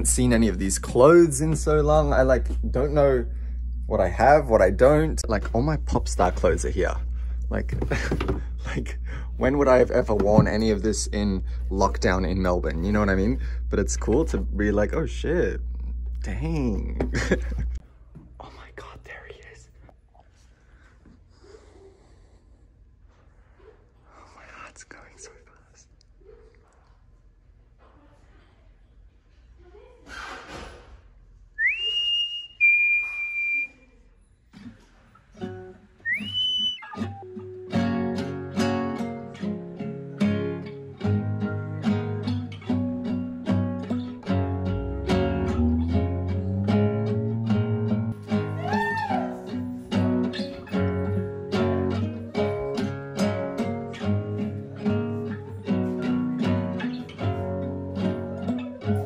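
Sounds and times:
acoustic guitar plucked chords: 0.0s - 17.8s, 35.4s - 48.7s, 49.3s - 59.0s
person whistling: 31.6s - 33.9s, 36.0s - 37.3s.

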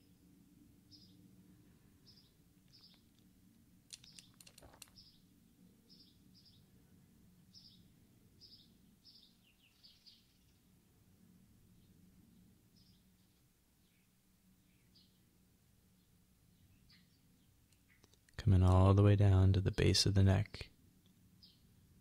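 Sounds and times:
bird chirping faintly: 0.9s - 3.2s, 3.9s - 6.8s
sharp clicks: 3.9s - 5.0s.

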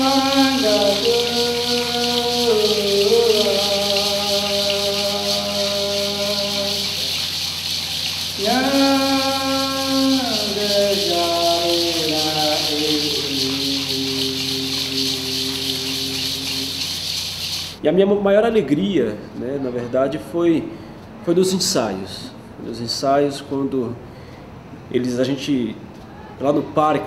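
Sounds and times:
man singing chant: 0.0s - 7.2s, 8.4s - 17.0s
shaken rattle hiss: 0.0s - 17.8s.

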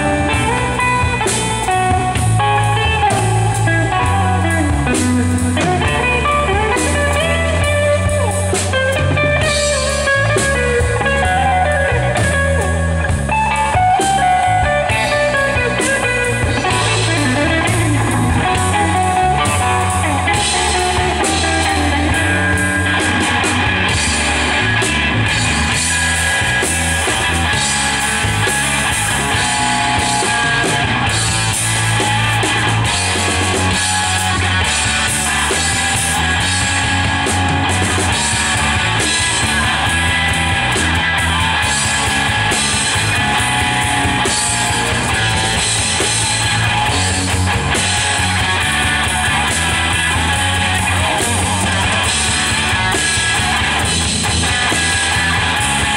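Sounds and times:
live instrumental rock band: 0.0s - 55.9s.

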